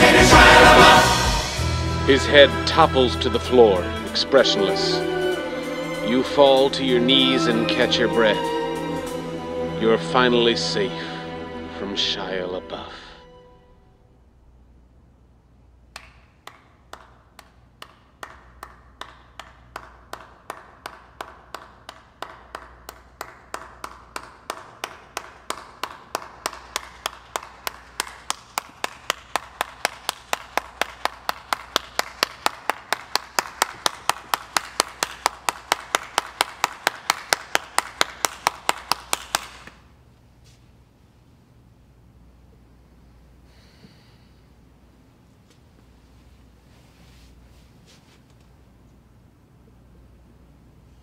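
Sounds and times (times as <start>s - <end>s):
person clapping in a hall: 15.8s - 40.0s.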